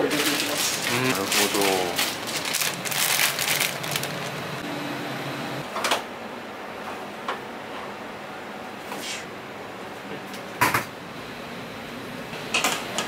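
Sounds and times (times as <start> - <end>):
plastic bags crinkling: 0.0 - 4.6.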